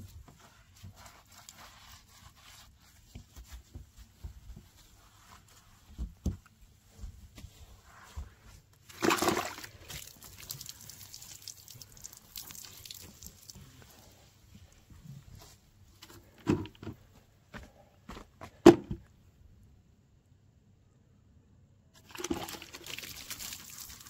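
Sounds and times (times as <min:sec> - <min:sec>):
soapy sponge wiping car body: 0:00.0 - 0:06.2
water dripping onto asphalt: 0:10.0 - 0:13.6.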